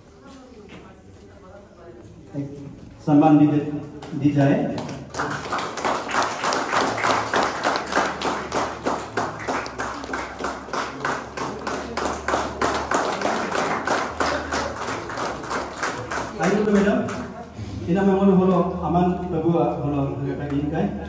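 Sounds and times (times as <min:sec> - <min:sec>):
people clapping in rhythm: 0:04.0 - 0:17.4.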